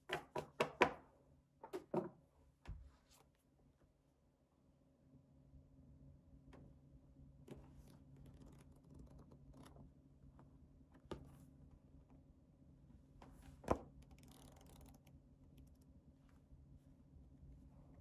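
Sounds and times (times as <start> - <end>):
pages rustling: 7.5 - 9.8
notebook cover and page taps: 11.0 - 11.4.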